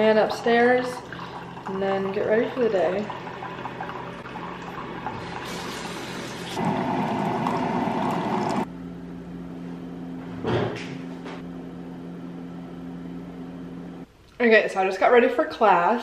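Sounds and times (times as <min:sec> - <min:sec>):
coffee maker pump running: 0:00.0 - 0:08.7
coffee pouring into a mug: 0:00.2 - 0:08.7
short clunk: 0:10.4 - 0:11.0.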